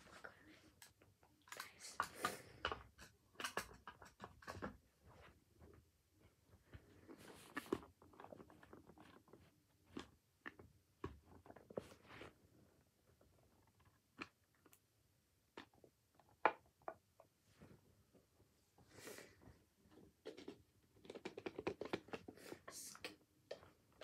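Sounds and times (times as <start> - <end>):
clicks and taps of handling: 0.8 - 4.8
soft rustling: 4.8 - 10.2.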